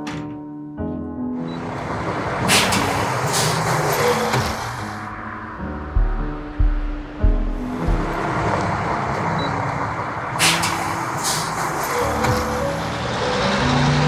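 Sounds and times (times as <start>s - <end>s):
bus engine and road noise: 1.4s - 14.0s
air brake hisses: 2.5s - 5.0s, 10.4s - 12.6s.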